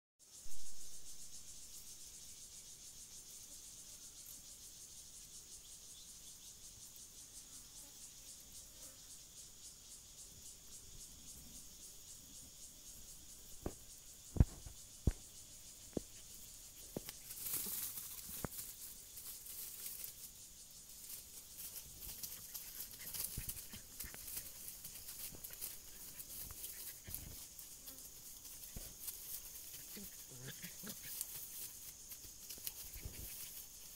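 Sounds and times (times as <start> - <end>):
insect chirring: 0.2 - 33.9
rustling: 16.8 - 33.9.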